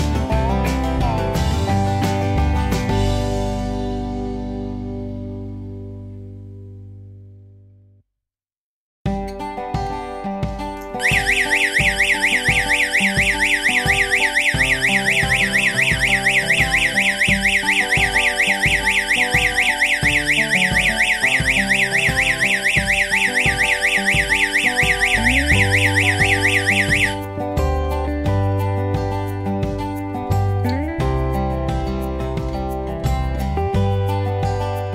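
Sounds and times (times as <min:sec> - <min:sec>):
electronic alarm siren warbling: 0:11.0 - 0:27.2.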